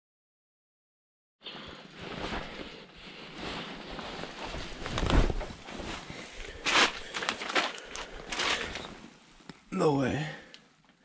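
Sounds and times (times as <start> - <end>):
clothing and gear rustling: 1.4 - 9.6.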